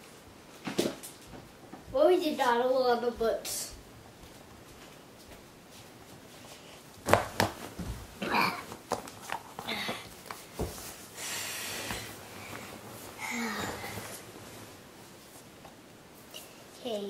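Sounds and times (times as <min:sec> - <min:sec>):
bedding rustling: 0:04.0 - 0:17.0
knocks and thumps on bed: 0:07.0 - 0:08.1.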